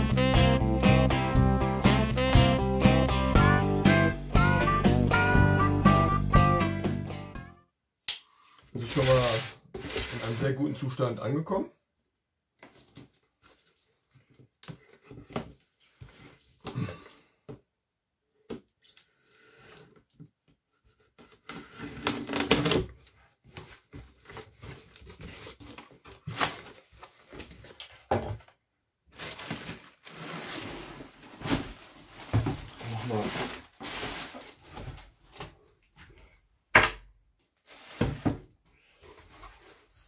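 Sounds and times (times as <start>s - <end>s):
plastic wrap rustling: 8.8s - 10.9s, 21.8s - 28.1s, 29.1s - 35.4s, 37.6s - 38.4s
cardboard flaps knocking and scraping: 31.4s - 35.6s, 37.9s - 38.5s.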